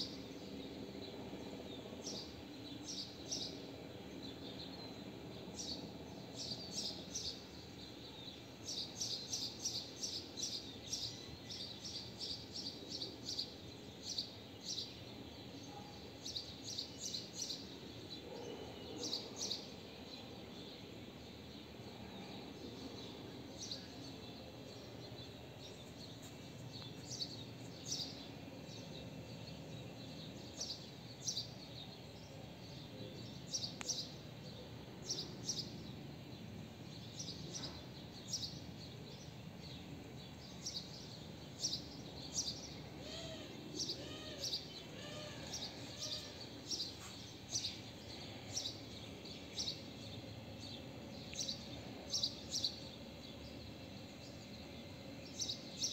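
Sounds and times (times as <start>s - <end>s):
outdoor background hum: 0.0s - 55.9s
lower arched bird calls: 42.3s - 50.0s.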